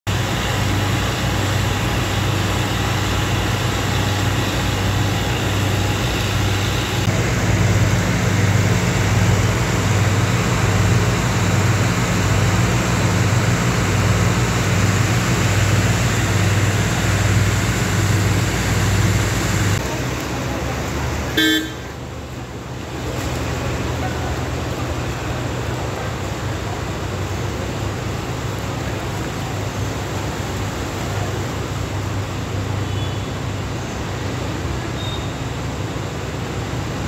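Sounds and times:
higher hum: 0.1s - 19.9s
constant wash of noise: 0.1s - 37.0s
low engine hum: 0.1s - 37.0s.

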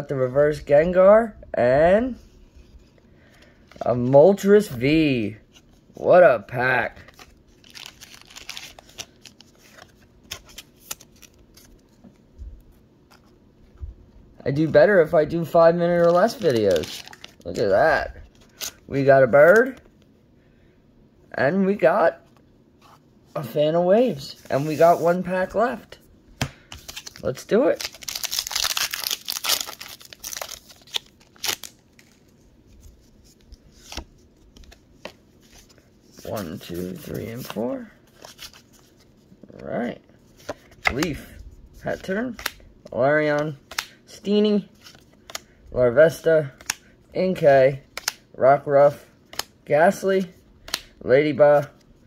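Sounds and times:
trading cards flicking and rustling: 7.0s - 12.2s, 15.9s - 17.8s, 26.4s - 39.6s
foil wrapper crinkling: 7.6s - 9.5s, 16.0s - 17.6s, 26.8s - 32.2s.

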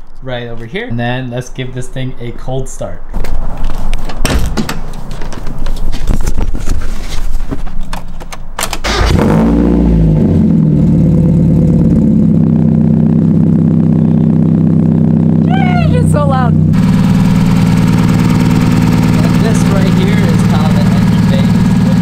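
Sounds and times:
car engine starting and idling: 8.6s - 22.0s.

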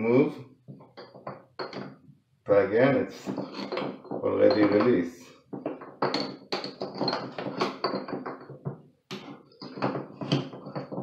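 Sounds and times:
wrench clicking and scraping in drain: 3.3s - 4.0s.

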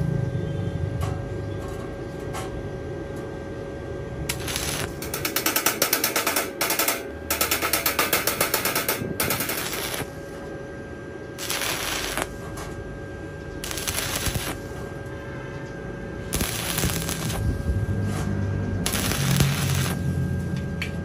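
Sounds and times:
faint steady whine: 0.0s - 21.0s
welding arc crackling and sputtering: 4.2s - 10.6s, 11.4s - 15.1s, 16.1s - 21.0s.

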